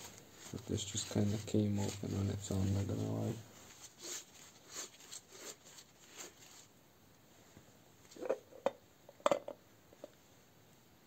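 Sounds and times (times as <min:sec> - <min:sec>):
faint rustling: 0:00.0 - 0:08.6.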